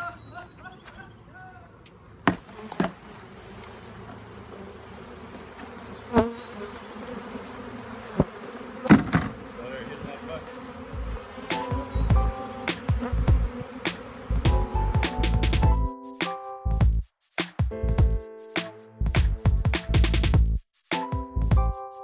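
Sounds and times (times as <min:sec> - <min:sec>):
bees buzzing: 0:02.2 - 0:15.7.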